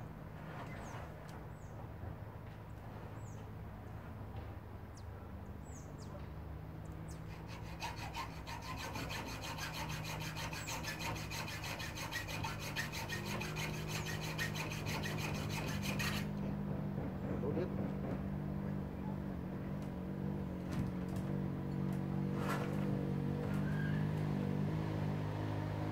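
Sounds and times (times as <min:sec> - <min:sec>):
hand tool rasping strokes: 0:07.3 - 0:16.4.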